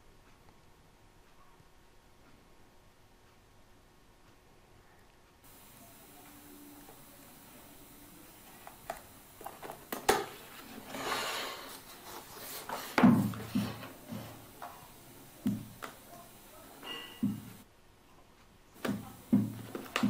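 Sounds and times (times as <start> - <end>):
cardboard sliding over wood: 9.5 - 14.6.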